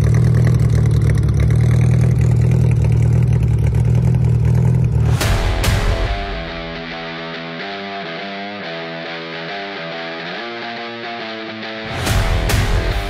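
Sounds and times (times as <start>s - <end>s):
car engine idling: 0.0s - 6.0s
electric guitar music: 5.0s - 13.0s.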